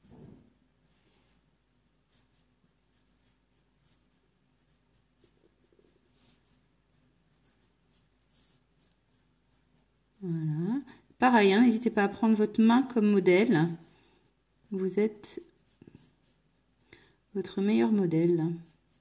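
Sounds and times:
felt-tip pen scratching on paper: 2.1 - 9.9.

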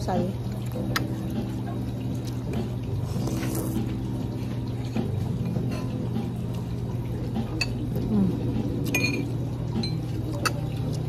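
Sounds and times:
low background hum: 0.0 - 11.0
cutlery clinking against bowl: 8.8 - 10.7.

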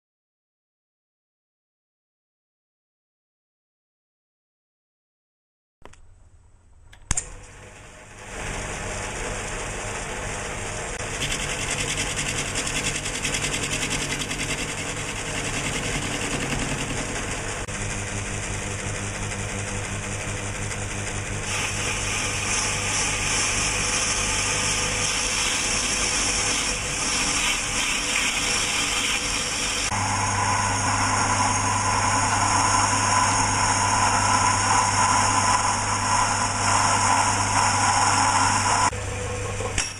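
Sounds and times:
sharp click: 5.8 - 6.1, 6.9 - 7.4
metal lathe cutting: 9.6 - 17.7, 21.0 - 38.9.

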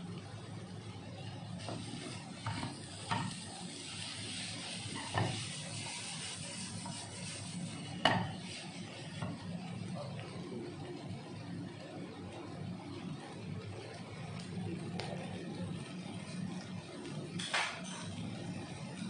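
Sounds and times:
food sizzling in a pan: 1.1 - 11.7
wooden spoon knocking a pan: 8.0 - 8.4.

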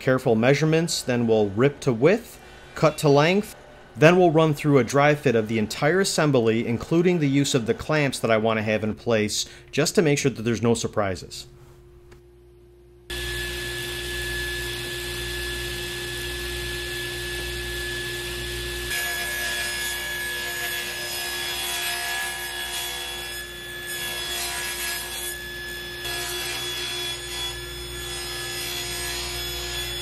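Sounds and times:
table saw motor hum: 13.1 - 20.9
saw blade cutting wood: 18.9 - 30.0.

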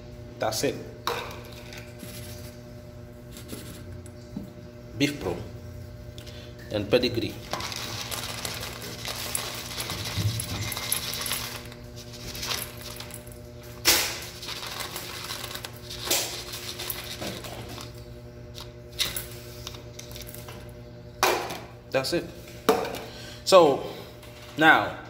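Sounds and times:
kibble rattling into metal bowls: 7.4 - 13.2, 13.9 - 17.9.

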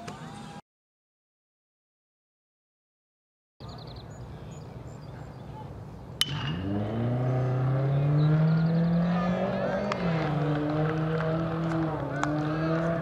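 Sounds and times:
outdoor ballpark ambience: 0.0 - 0.6, 3.6 - 13.0
baseball bat cracking ball: 6.2 - 6.8, 9.8 - 13.0.

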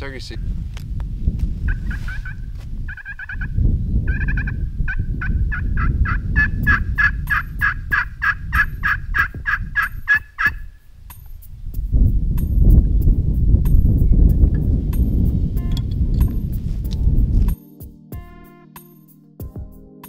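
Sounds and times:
wind rumble on microphone: 0.0 - 17.6
turkey call yelps: 1.7 - 3.5, 4.1 - 10.7.

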